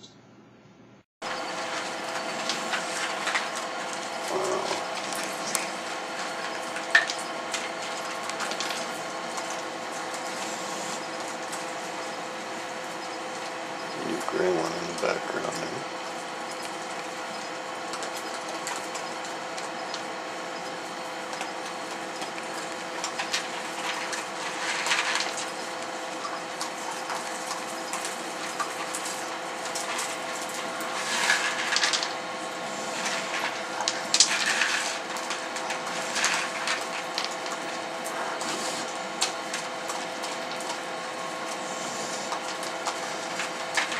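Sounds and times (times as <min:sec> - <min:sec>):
steady background hum: 0:00.0 - 0:43.9
animals crunching dry kibble: 0:21.3 - 0:43.9.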